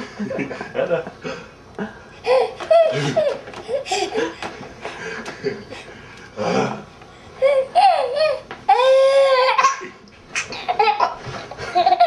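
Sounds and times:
baby laughing: 2.2 - 4.5, 7.4 - 9.8, 10.4 - 12.0.

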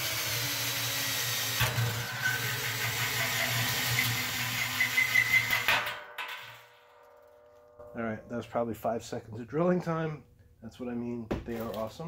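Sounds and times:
drill motor running: 0.0 - 5.7
hole saw cutting metal: 0.0 - 6.0
high squeal of saw: 1.8 - 5.7.

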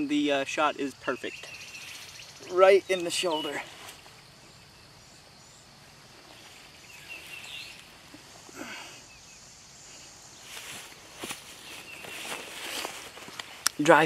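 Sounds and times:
faint bird chirps: 0.0 - 13.1
rustling: 10.4 - 14.0.

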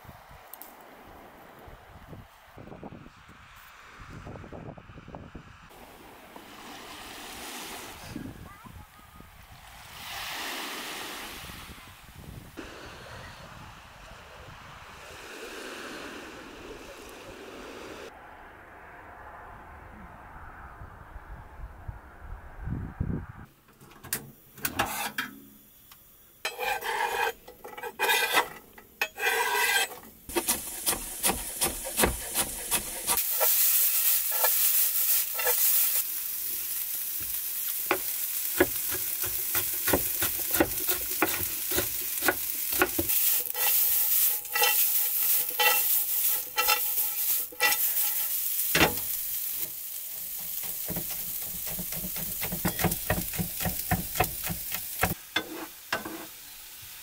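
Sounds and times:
stirring scrape: 24.8 - 25.2, 26.4 - 36.0, 37.9 - 49.2, 50.2 - 56.3
vegetables sizzling in a pan: 26.4 - 57.0
knife chopping on wooden board: 30.3 - 33.2, 38.6 - 43.1, 50.8 - 55.2.

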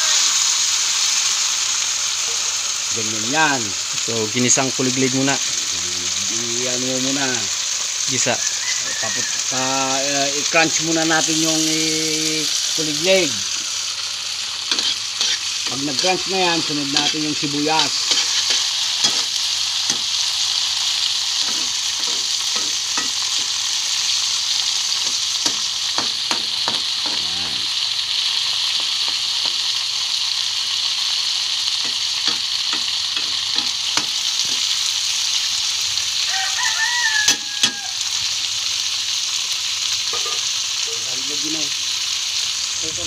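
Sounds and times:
insects sizzling in hot oil: 0.0 - 43.0
rooster crowing: 8.1 - 10.1, 36.2 - 38.2
metal spatula scraping a pan: 14.7 - 20.2, 21.4 - 23.5.

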